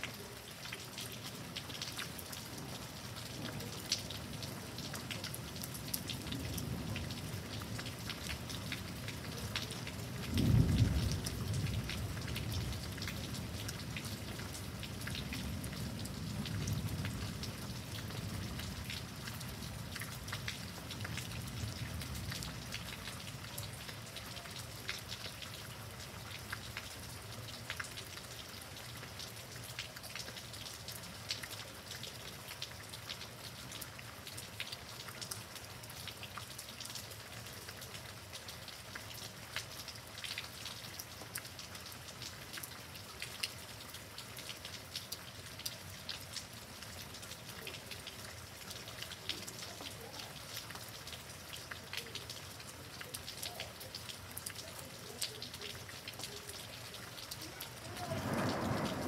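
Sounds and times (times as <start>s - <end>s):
heavy rain: 0.0s - 59.0s
low rumble of thunder: 10.0s - 13.7s, 57.7s - 59.0s
sharp rain drop ticks: 38.3s - 59.0s.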